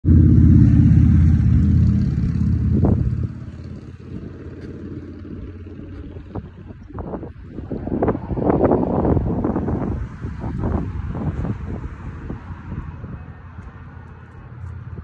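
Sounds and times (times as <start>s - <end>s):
car engine idling: 0.0s - 7.6s.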